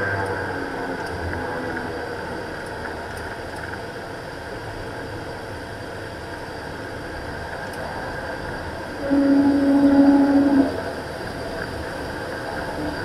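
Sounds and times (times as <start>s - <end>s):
turboprop engines running: 0.0s - 13.0s.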